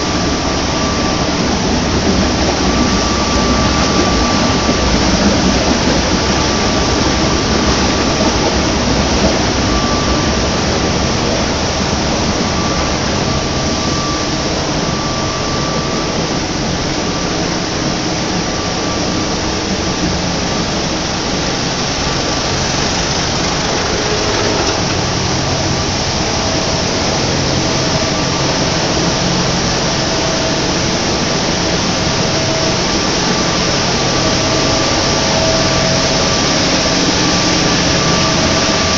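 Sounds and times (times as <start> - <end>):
machinery running: 0.0 - 38.9.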